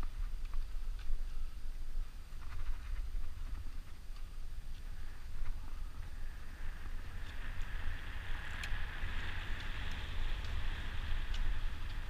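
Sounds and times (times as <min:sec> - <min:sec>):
wind buffeting microphone: 0:00.0 - 0:12.0
faint clicks: 0:09.5 - 0:12.0.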